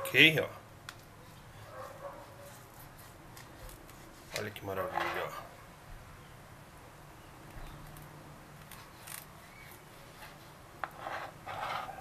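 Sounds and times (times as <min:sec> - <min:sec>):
knife scraping cutting board: 0:10.2 - 0:12.0.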